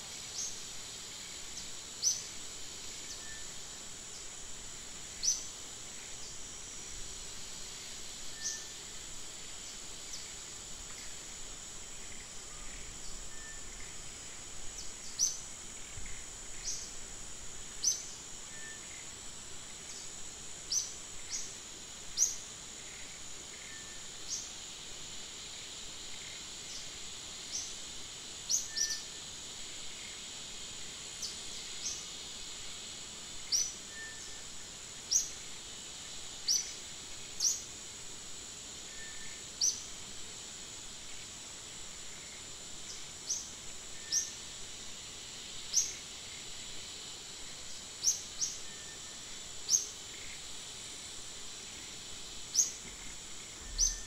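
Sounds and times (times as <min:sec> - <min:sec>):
insect drone: 0:00.0 - 0:54.0
sharp bird chirps: 0:53.7 - 0:54.0.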